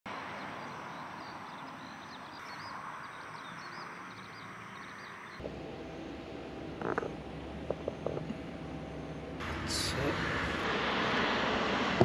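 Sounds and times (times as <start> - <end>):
small birds chirping: 0.2 - 5.4.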